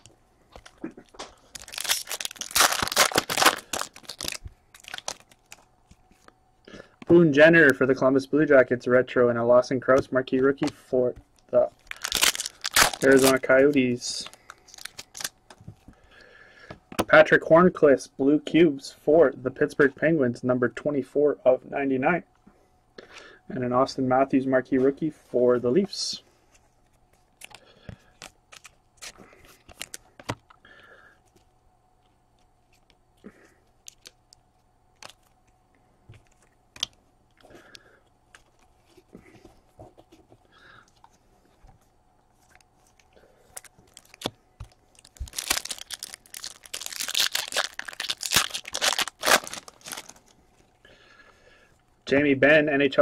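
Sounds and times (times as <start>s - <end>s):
foil wrapper tearing and crumpling: 0.6s - 5.7s, 11.8s - 15.4s, 42.5s - 50.4s
cards tapping and rustling: 27.4s - 30.5s.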